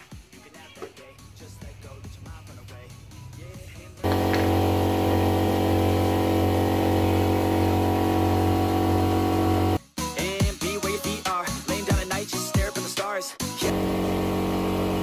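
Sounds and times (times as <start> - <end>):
air compressor running: 4.0 - 9.8, 13.6 - 15.0.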